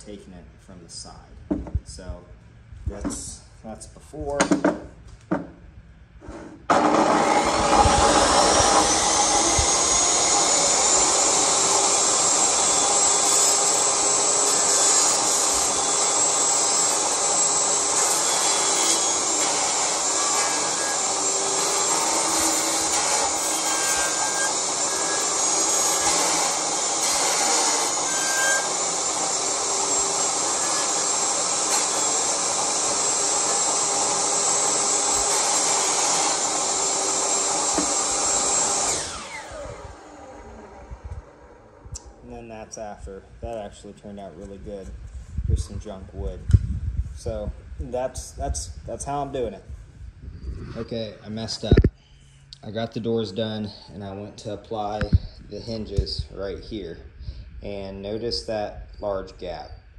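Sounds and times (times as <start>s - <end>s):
saw blade rasping wood: 6.2s - 39.3s
table saw motor whine: 6.7s - 42.2s.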